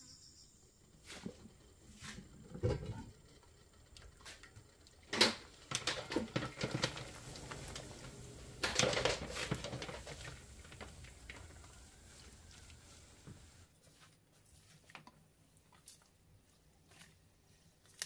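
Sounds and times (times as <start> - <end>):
stems rustling in water: 5.7 - 18.0.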